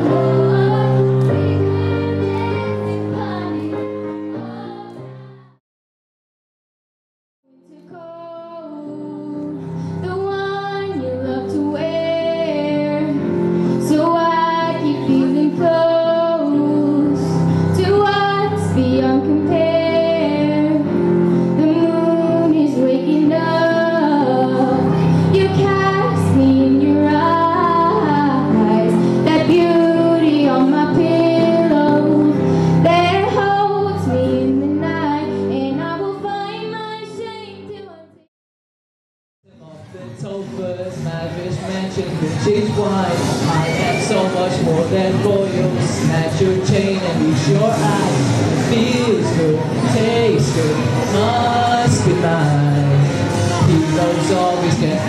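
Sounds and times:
girl singing into microphone: 0.0s - 5.5s, 7.5s - 38.2s
musical accompaniment: 0.0s - 5.6s, 7.6s - 38.3s, 39.6s - 55.0s.

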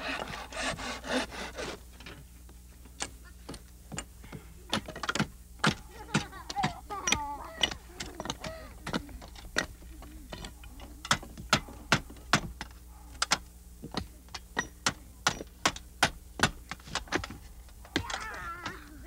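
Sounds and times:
blade chopping wood: 4.7s - 10.5s, 11.1s - 17.4s.

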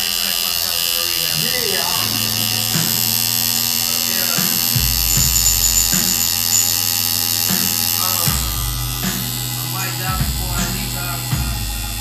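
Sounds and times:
tattoo machine buzzing: 0.0s - 12.0s
background music with beat: 1.4s - 12.0s.

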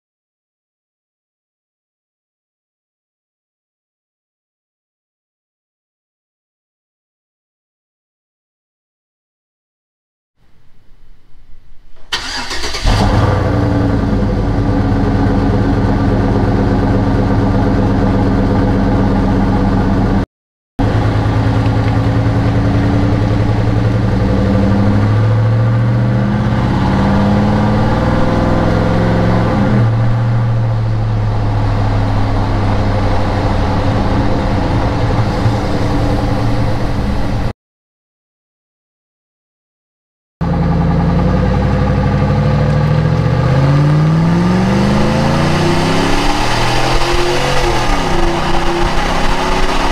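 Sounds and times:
engine idling and revving: 12.1s - 37.5s, 40.4s - 49.9s.

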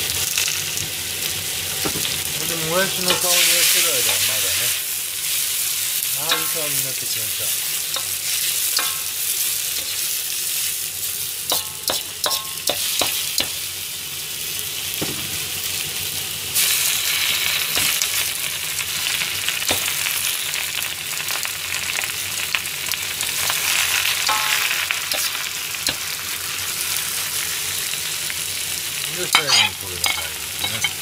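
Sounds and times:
vegetables sizzling in a wok: 0.0s - 31.0s
metal ladle scraping a wok: 24.2s - 26.0s, 29.4s - 31.0s.

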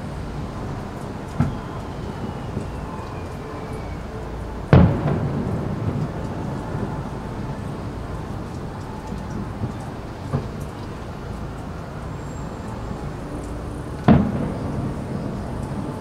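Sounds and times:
low fireworks rumble: 0.0s - 16.0s
sharp firework boom: 14.1s - 15.5s.

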